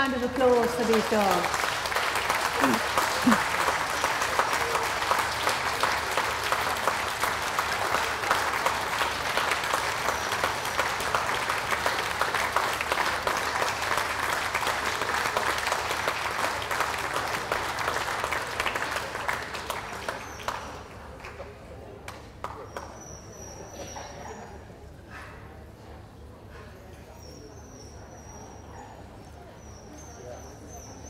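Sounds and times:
audience applauding: 0:00.0 - 0:23.0.

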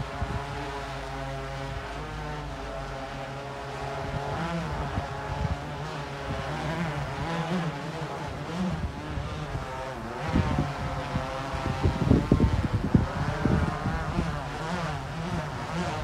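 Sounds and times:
quadcopter propellers whining: 0:00.0 - 0:16.0.

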